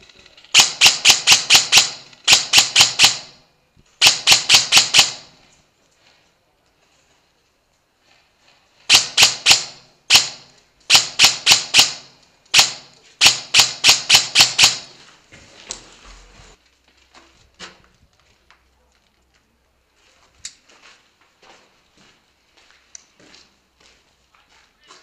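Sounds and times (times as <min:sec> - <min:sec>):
airsoft rifle shots echoing: 0:00.5 - 0:03.4, 0:04.0 - 0:05.4, 0:08.9 - 0:15.0.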